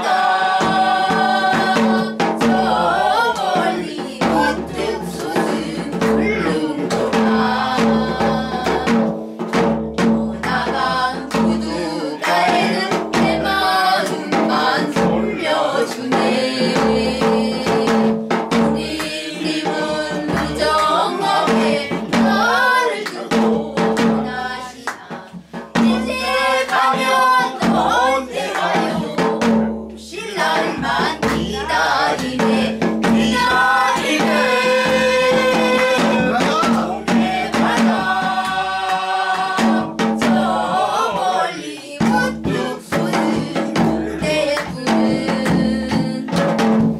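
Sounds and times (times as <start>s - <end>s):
drum keeping steady beat: 0.0s - 46.9s.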